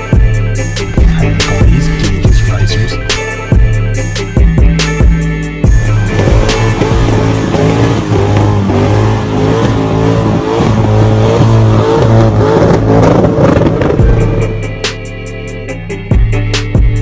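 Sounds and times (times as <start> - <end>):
car engine revving: 0.0 - 15.3
tires spinning: 5.7 - 14.6.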